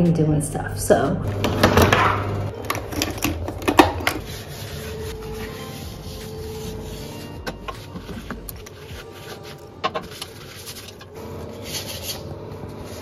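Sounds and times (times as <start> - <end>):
air conditioner humming: 0.0 - 13.0
bottles rubbing: 2.8 - 13.0
cloth wiping sink: 4.0 - 11.0.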